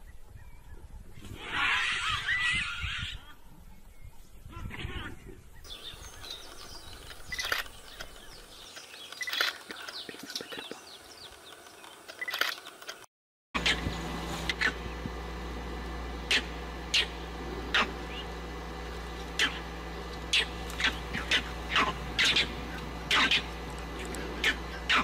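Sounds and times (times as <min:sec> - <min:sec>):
birds chirping: 0:00.0 - 0:13.0, 0:13.6 - 0:25.0
sharp clicks: 0:07.0 - 0:13.1.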